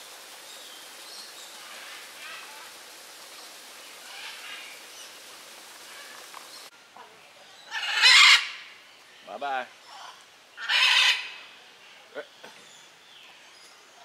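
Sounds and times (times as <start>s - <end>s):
parrots screeching: 7.7s - 8.6s, 9.9s - 11.4s.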